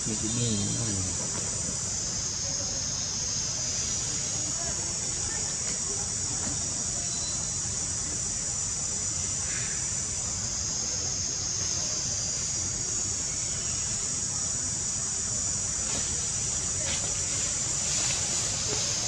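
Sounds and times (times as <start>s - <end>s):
insect chorus drone: 0.0s - 19.0s.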